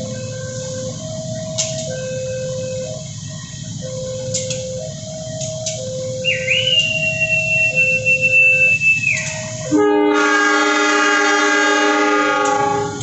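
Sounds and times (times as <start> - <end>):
high steady whine: 0.0 - 13.0
train rumbling on rails: 0.0 - 13.0
two-tone crossing alarm: 0.0 - 13.0
train air horn: 6.3 - 13.0.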